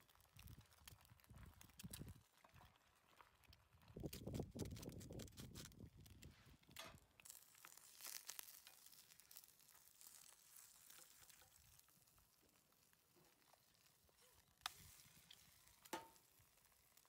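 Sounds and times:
eggs sizzling in pan: 0:06.8 - 0:17.0.

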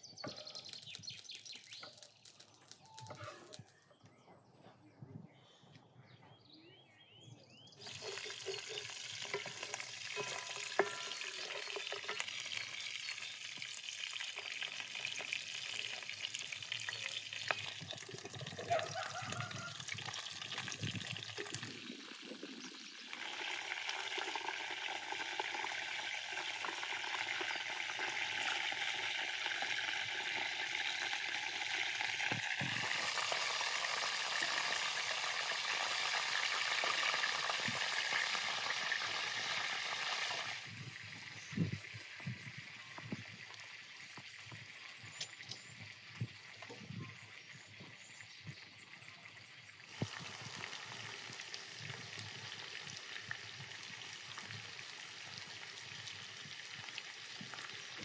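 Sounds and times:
wooden spoon stirring: 0:07.8 - 0:13.2
chicken sizzling in a pan: 0:07.8 - 0:47.5, 0:49.3 - 0:58.0.

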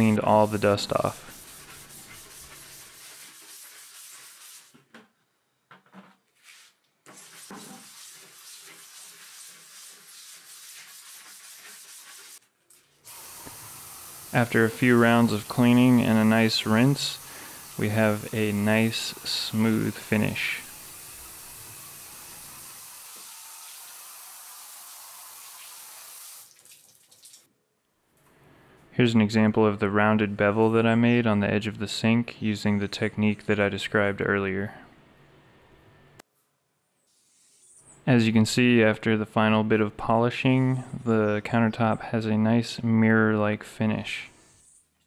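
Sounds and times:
scrub brush scrubbing wet concrete: 0:00.0 - 0:04.7, 0:06.4 - 0:12.5, 0:13.1 - 0:21.3.

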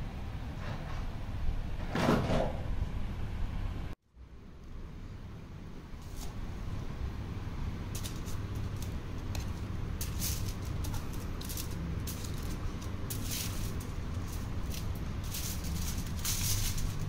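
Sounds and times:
tool scraping on foil: 0:06.0 - 0:06.4, 0:07.9 - 0:17.0
aluminium foil crinkling: 0:07.8 - 0:17.0.

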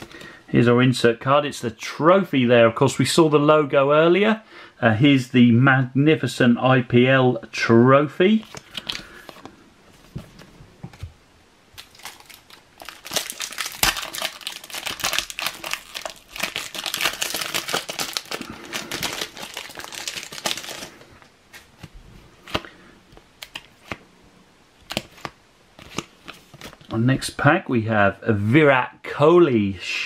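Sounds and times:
foil wrapper tearing and crinkling: 0:11.8 - 0:21.1.

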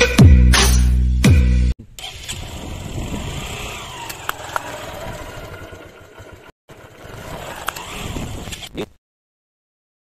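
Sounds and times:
motorcycle engine rumbling: 0:01.8 - 0:08.5.

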